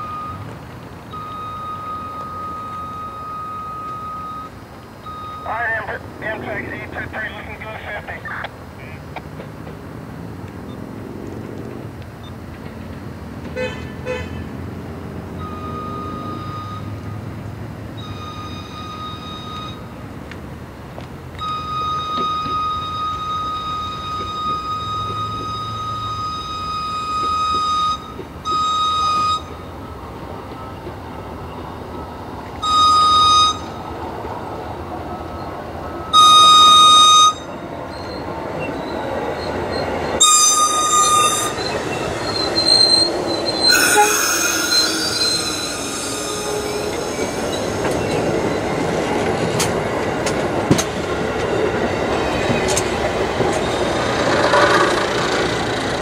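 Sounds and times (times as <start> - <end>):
train rumbling past: 0.0 - 56.0
locomotive horn blasts: 13.6 - 14.4, 36.1 - 37.5, 40.2 - 48.2
train wheel squeal: 15.4 - 17.2, 18.0 - 19.9, 21.4 - 34.2, 35.2 - 55.8
wheels clicking over rail joints: 33.7 - 56.0.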